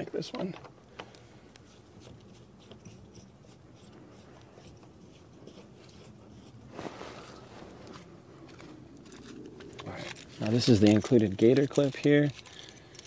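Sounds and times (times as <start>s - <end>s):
hose fitting clicks and scrapes: 0.2s - 6.6s, 9.0s - 13.0s.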